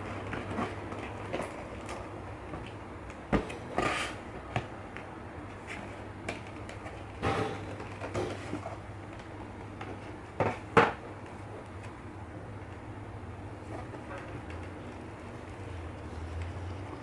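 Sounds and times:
cardboard box rustling and scraping: 0:03.7 - 0:04.2.

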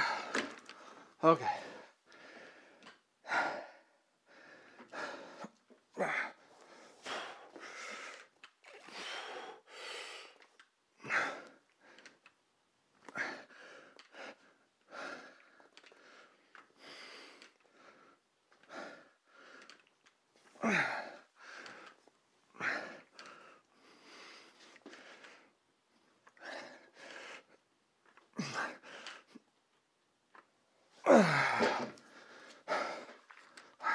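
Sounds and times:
man breathing hard: 0:00.0 - 0:12.2, 0:13.1 - 0:25.6, 0:26.2 - 0:27.6, 0:28.3 - 0:29.4, 0:31.0 - 0:33.9
man grunting: 0:31.1 - 0:31.9.

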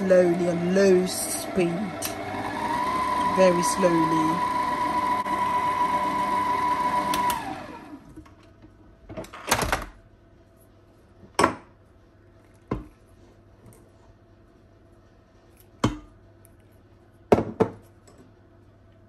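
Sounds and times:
electric mixer whining: 0:00.0 - 0:08.2.

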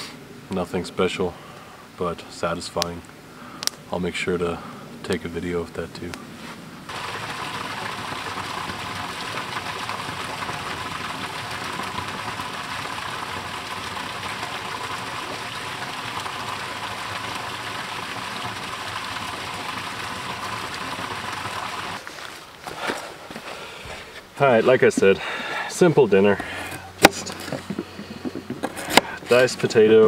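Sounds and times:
creek water flowing: 0:06.8 - 0:30.0.

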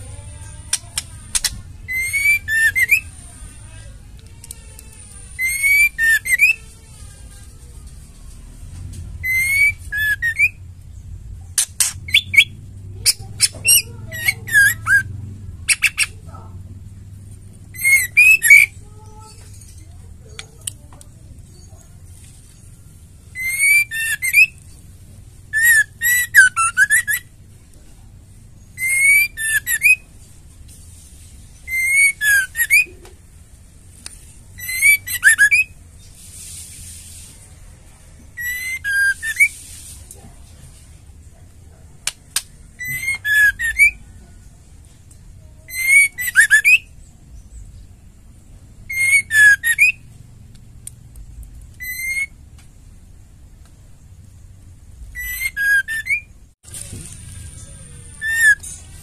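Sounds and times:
bird harsh clicking chatter: 0:00.3 - 0:06.7, 0:11.6 - 0:16.4, 0:42.0 - 0:44.0
bird whistling calls: 0:00.7 - 0:03.2, 0:05.3 - 0:06.7, 0:09.2 - 0:10.6, 0:11.8 - 0:15.1, 0:17.7 - 0:18.8, 0:23.3 - 0:24.6, 0:25.5 - 0:27.3, 0:28.7 - 0:30.1, 0:31.6 - 0:33.0, 0:34.6 - 0:35.8, 0:38.4 - 0:39.7, 0:42.7 - 0:44.1, 0:45.7 - 0:47.0, 0:48.9 - 0:50.0, 0:51.8 - 0:52.4, 0:55.1 - 0:56.3, 0:58.2 - 0:58.7.

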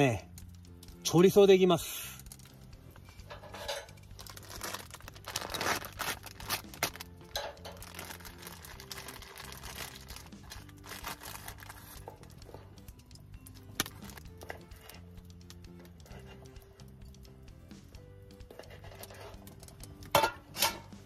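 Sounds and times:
soft background music: 0:00.0 - 0:21.0
plastic packaging crinkling: 0:03.9 - 0:12.5, 0:13.1 - 0:15.5.

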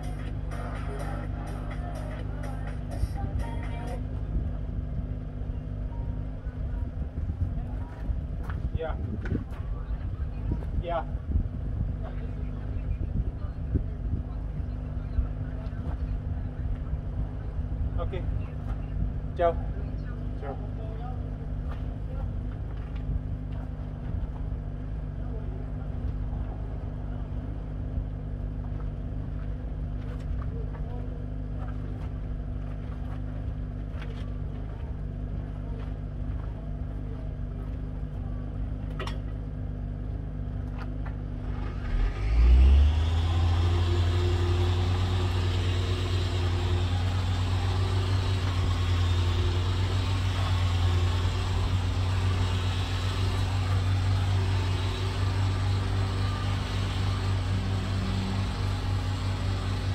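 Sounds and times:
low motor hum: 0:00.0 - 0:59.9
engine starting up and running: 0:40.8 - 0:59.9.

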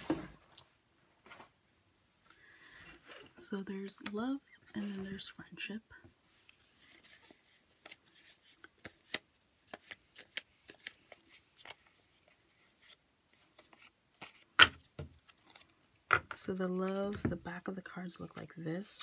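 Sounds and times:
cards rubbing and flicking: 0:06.5 - 0:15.6.

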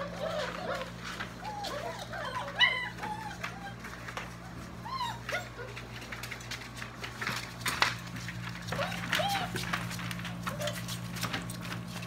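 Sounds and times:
puppies whimpering: 0:00.0 - 0:06.4, 0:08.6 - 0:11.0.

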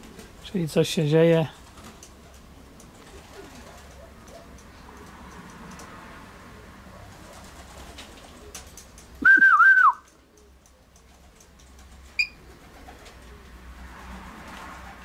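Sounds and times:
faint outdoor background: 0:00.0 - 0:15.0
person whistling: 0:09.2 - 0:10.0.

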